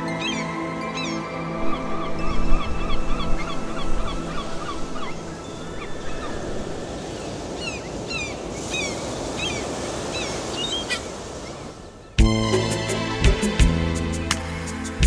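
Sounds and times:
music with long held notes: 0.0 - 6.6, 12.2 - 15.0
seabirds calling: 0.0 - 14.8.

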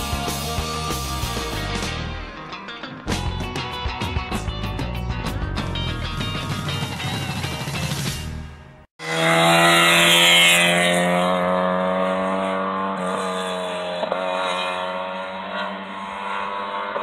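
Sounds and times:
rally car engine pulling hard: 9.0 - 17.0.

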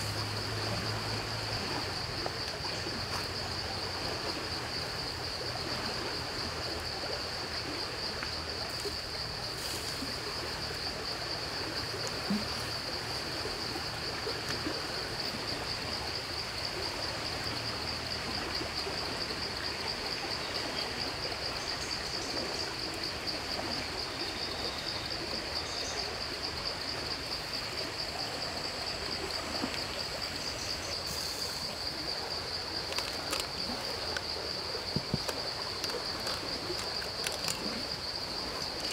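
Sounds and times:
constant hiss: 0.0 - 38.9
insects trilling: 0.0 - 38.9.

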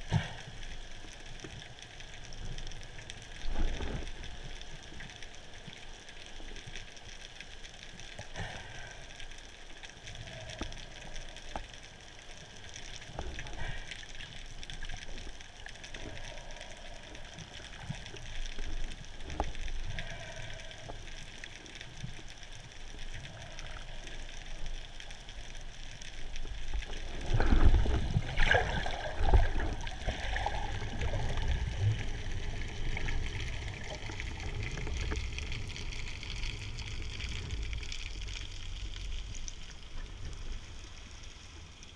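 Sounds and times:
low rumbling and crackling: 0.0 - 41.9
muffled underwater water rush: 0.0 - 41.9
faint clicks: 1.0 - 28.0.

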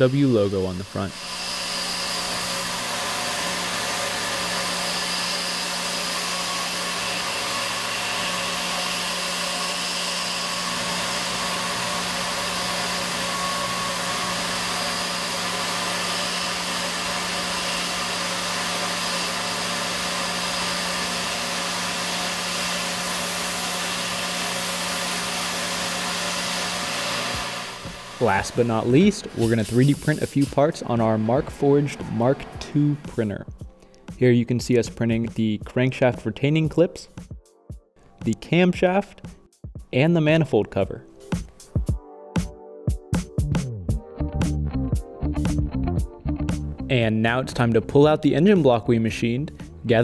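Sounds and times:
milling machine spindle whirring: 0.0 - 33.2
coolant hiss: 10.8 - 30.8.

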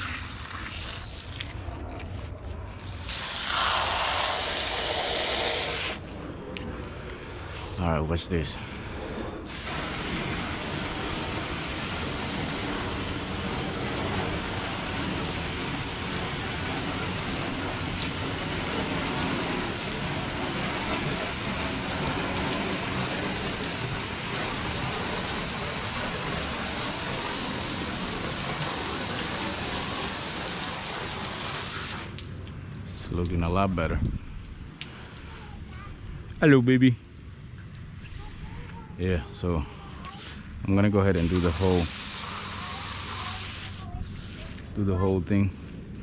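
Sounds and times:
water spray hissing on metal panels: 0.0 - 1.6, 2.9 - 6.0, 9.5 - 32.2, 41.1 - 44.5
pressure washer running: 3.0 - 6.0, 9.5 - 32.2, 41.1 - 43.8.

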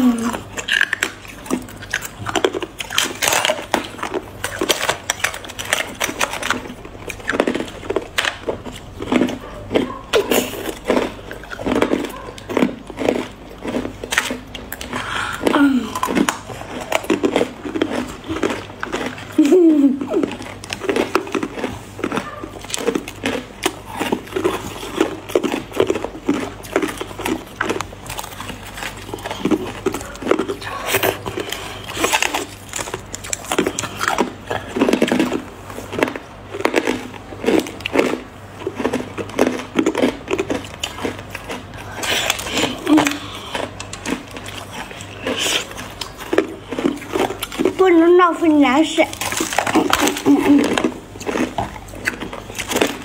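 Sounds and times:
person humming: 0.0 - 0.4
ice crunching while chewed: 0.0 - 53.0.

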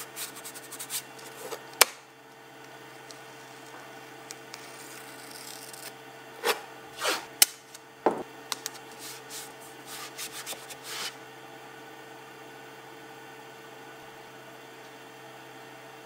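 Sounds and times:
tape rubbing rustles: 0.0 - 1.6, 4.4 - 7.3, 8.6 - 11.2
knife cutting tape: 4.3 - 7.8, 8.6 - 11.2.

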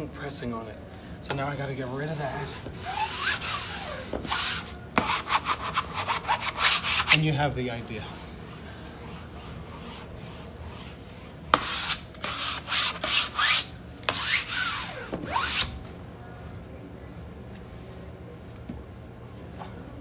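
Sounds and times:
cloth pad rubbing on vinyl: 1.5 - 15.7.

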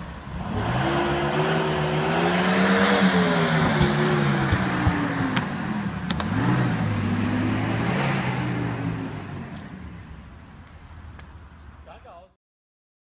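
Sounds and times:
car engine accelerating: 0.0 - 10.1
sharp knocks: 3.6 - 5.5.

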